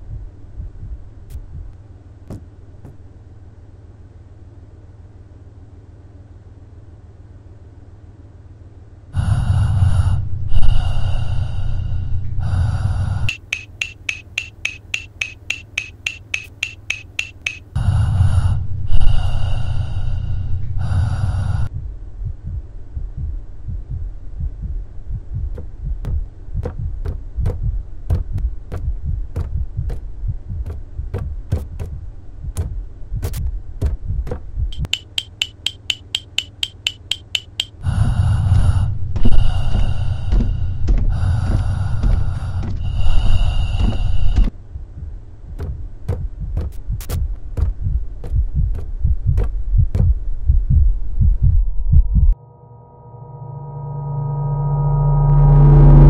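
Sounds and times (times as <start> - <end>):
irregular clicks and thuds: 0.0 - 3.1, 13.3 - 17.8, 22.2 - 37.8, 39.1 - 51.5
low hum: 0.0 - 56.0
low throbbing electronic drone: 21.5 - 56.0.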